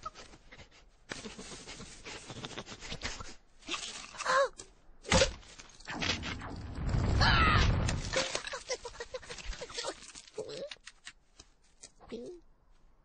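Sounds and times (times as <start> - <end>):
sharp thwack: 5.1 - 5.4
cartoon rushing noise: 5.9 - 9.2
loud low rush: 6.2 - 8.2.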